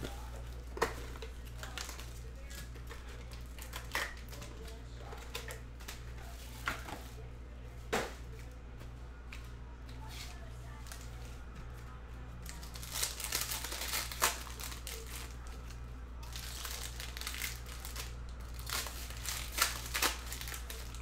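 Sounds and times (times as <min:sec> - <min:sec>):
cardboard box and foil packs handled: 0:00.0 - 0:07.2, 0:12.4 - 0:21.0
low electrical hum: 0:00.0 - 0:21.0.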